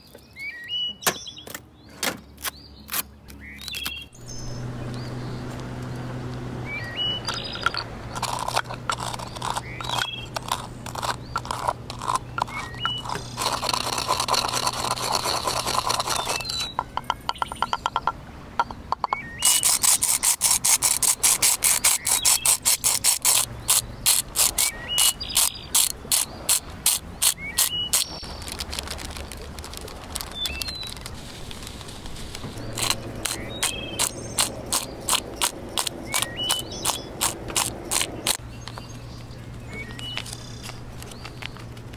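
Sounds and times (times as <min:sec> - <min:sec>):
birds chirping: 0:00.0 - 0:41.9
pestle pounding in wooden mortar: 0:32.7 - 0:38.4.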